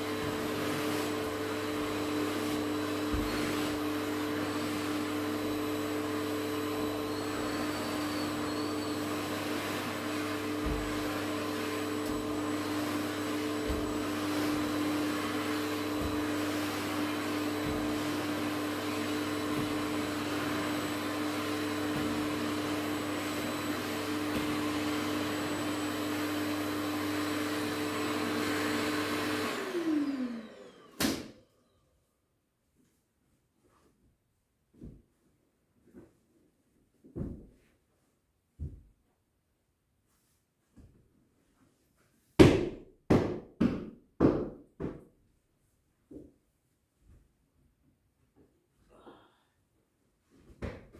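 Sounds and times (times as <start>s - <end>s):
vacuum cleaner running: 0.0s - 31.9s.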